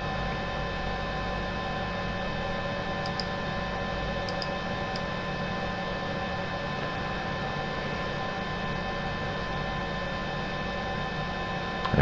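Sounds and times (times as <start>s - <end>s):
electrical hum: 0.0s - 12.0s
computer mouse clicks: 3.0s - 3.4s, 4.2s - 5.1s.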